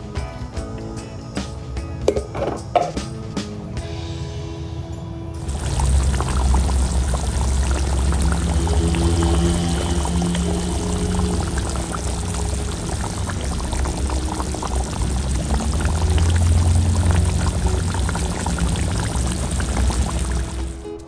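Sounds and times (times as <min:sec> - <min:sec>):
background music: 0:00.0 - 0:21.0
sauce bubbling and popping in wok: 0:05.4 - 0:21.0.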